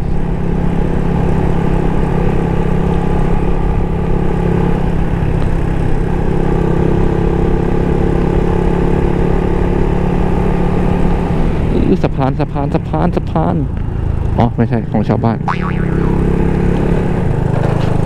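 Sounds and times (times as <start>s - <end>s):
motorcycle engine cruising: 0.0s - 18.0s.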